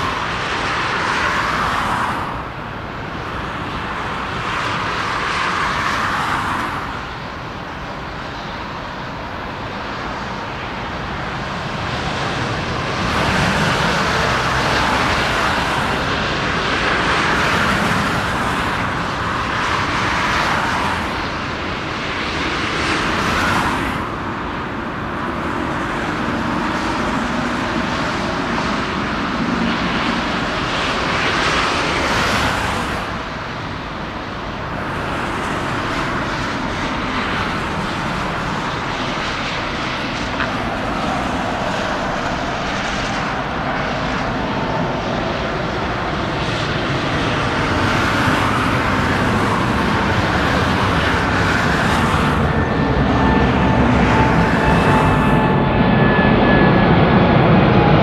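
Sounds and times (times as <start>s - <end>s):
jet engines roaring overhead: 0.0s - 58.0s.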